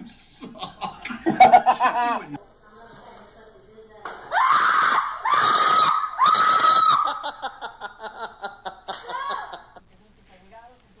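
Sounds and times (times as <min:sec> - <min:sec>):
woman screaming: 0:04.3 - 0:07.3, 0:09.0 - 0:09.6.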